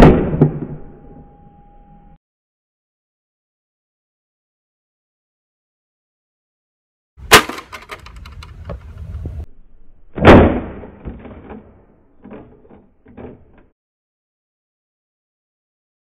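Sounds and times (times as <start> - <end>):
rc car crashing: 7.3 - 8.5
rattling and scraping: 7.3 - 9.4.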